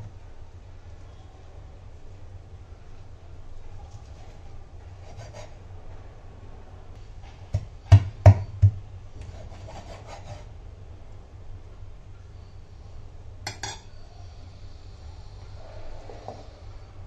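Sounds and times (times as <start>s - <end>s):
knife scraping fish flesh: 9.2s - 10.5s.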